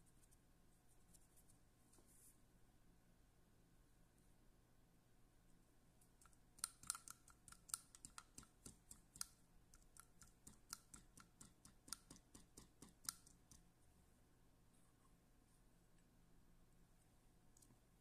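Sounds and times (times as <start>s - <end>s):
fly-tying tools clicking and tapping: 6.2s - 13.6s.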